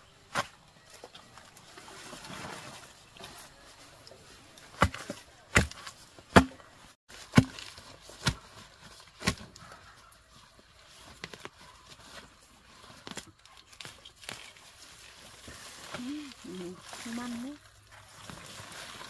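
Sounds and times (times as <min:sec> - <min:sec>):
digging tool chopping dry soil: 0:04.7 - 0:09.6.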